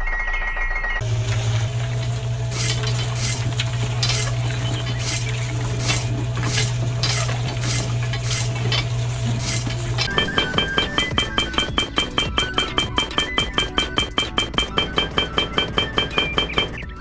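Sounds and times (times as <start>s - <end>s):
small electric motor humming: 1.0s - 10.1s
short high electronic tone: 10.1s - 15.0s.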